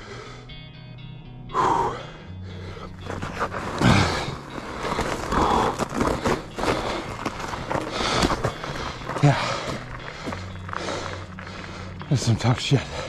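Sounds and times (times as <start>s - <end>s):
cyclist breathing hard: 0.0s - 0.8s, 1.5s - 12.1s, 12.8s - 13.0s
tyres rolling: 2.6s - 13.0s.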